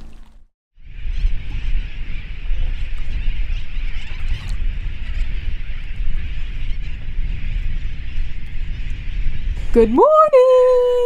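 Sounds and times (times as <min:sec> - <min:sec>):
seabirds calling: 0:00.0 - 0:10.7.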